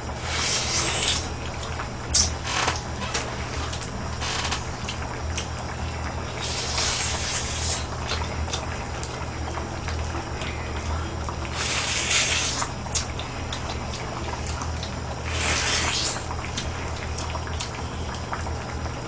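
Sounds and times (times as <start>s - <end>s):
low steady hum: 0.0s - 19.0s
wet slurping and chewing: 0.1s - 5.5s, 6.3s - 9.2s, 11.3s - 18.2s.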